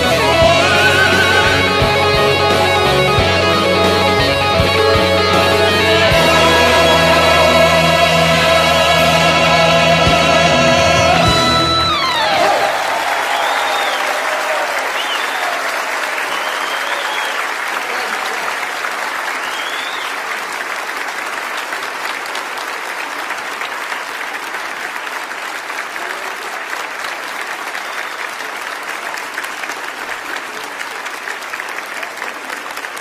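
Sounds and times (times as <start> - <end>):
high cheers: 0.0 - 23.0
audience applauding: 0.0 - 33.0.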